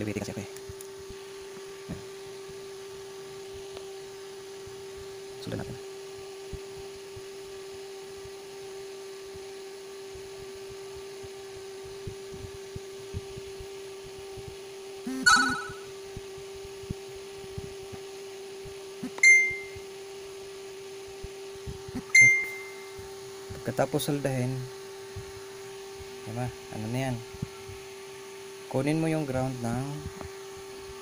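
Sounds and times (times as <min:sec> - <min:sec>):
low electrical hum: 0:00.0 - 0:31.0
sharp ringing pings: 0:15.2 - 0:15.9, 0:19.2 - 0:19.8, 0:22.2 - 0:22.8.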